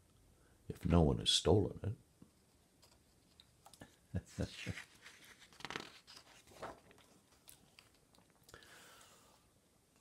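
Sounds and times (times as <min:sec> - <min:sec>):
paper page rustling: 0:04.3 - 0:08.0.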